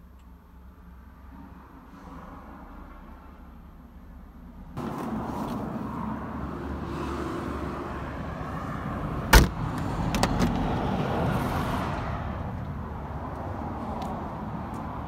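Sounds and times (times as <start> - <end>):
car door slamming: 9.3 - 10.6.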